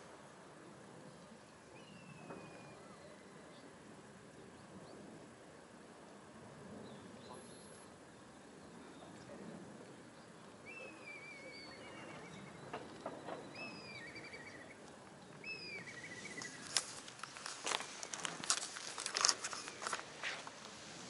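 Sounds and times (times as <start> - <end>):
faint outdoor background noise: 0.0 - 21.0
bird whistle and trill call: 10.6 - 14.8, 15.4 - 16.6.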